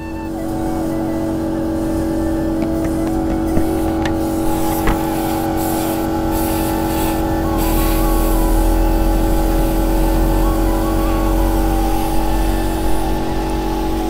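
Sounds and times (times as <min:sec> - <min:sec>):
air compressor humming: 0:01.8 - 0:07.7
spray gun hissing: 0:02.6 - 0:07.9.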